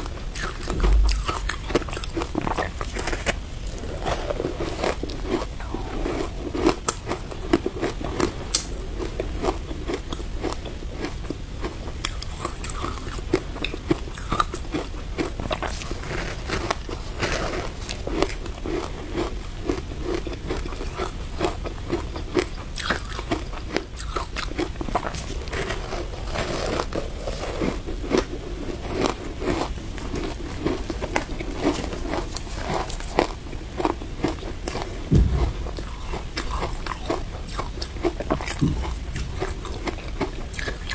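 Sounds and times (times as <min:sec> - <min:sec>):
crunching shaved ice: 0:00.0 - 0:40.9
dull thump: 0:35.1 - 0:36.0.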